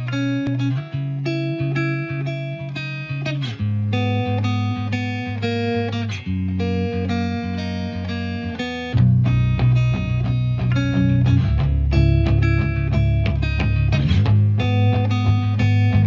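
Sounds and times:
plucked guitar: 0:00.0 - 0:16.0
bass line: 0:06.3 - 0:16.0.

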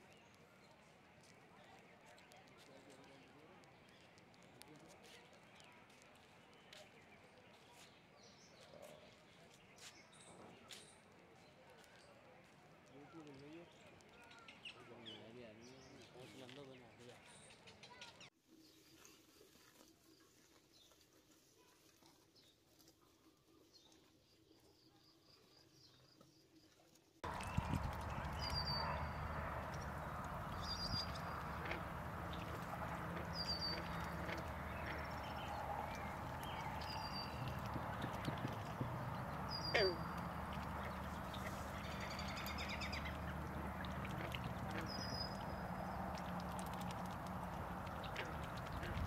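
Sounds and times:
geese feeding in shallow water: 0:00.0 - 0:49.0
small water splashes: 0:25.8 - 0:49.0
faint clicks: 0:27.2 - 0:49.0
faint high bird chirp: 0:32.3 - 0:43.2.

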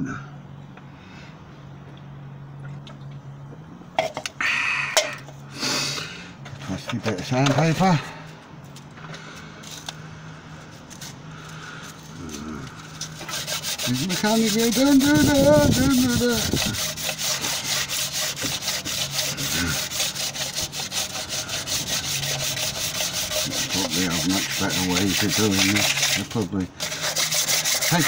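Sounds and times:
man humming: 0:12.1 - 0:12.9, 0:14.7 - 0:16.8
sandpaper scraping metal: 0:12.3 - 0:28.0.

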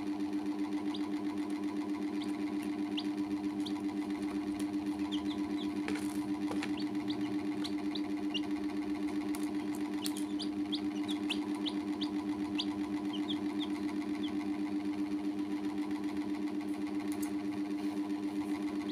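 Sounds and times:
pulsing mechanical hum: 0:00.0 - 0:18.9
baby chicks peeping: 0:00.4 - 0:14.5, 0:18.5 - 0:18.9.

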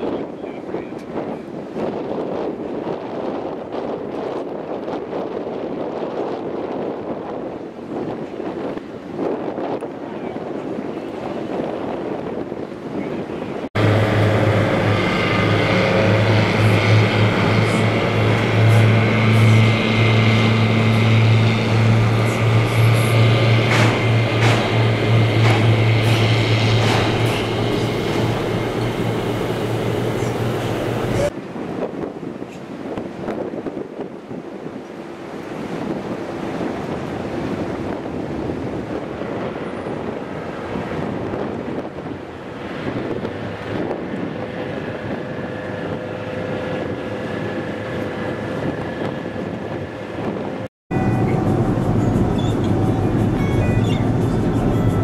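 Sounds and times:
wind buffeting microphone: 0:00.0 - 0:55.0
ship engines droning: 0:12.3 - 0:31.3, 0:39.3 - 0:55.0
rushing noise: 0:13.7 - 0:31.4, 0:42.1 - 0:55.0.

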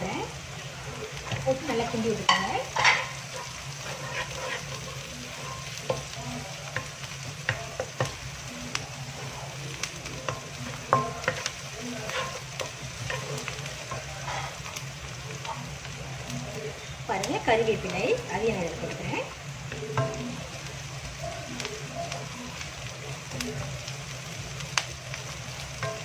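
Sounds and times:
oil sizzling: 0:00.0 - 0:26.0
spatula scraping a wok: 0:00.6 - 0:17.1.

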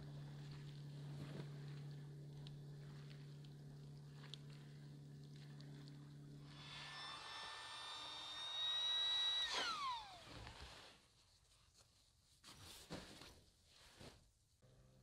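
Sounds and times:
electric motor whining: 0:06.1 - 0:10.7.

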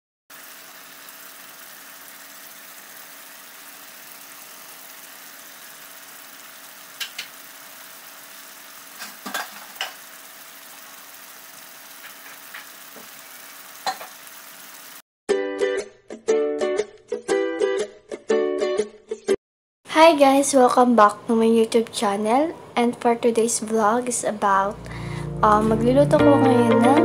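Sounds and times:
chicken sizzling in a pan: 0:00.3 - 0:15.0.

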